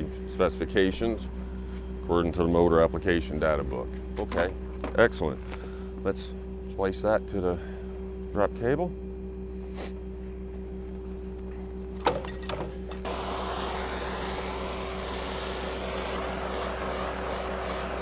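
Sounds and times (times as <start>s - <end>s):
truck engine hum: 12.7s - 18.0s
steady rushing hiss: 13.0s - 18.0s.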